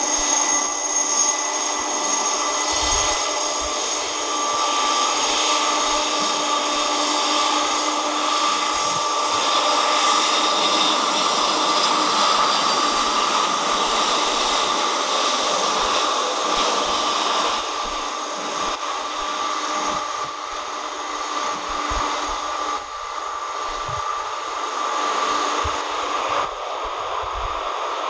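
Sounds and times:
jet engine rush and whine: 0:00.0 - 0:28.0.

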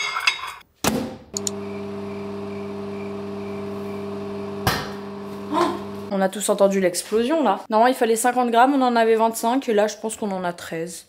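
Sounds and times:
microwave oven humming: 0:01.4 - 0:06.1.

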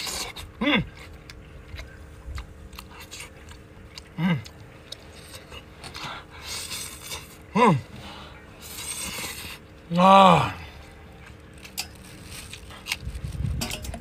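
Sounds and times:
wet chewing close to microphone: 0:00.0 - 0:07.5, 0:08.6 - 0:09.7.

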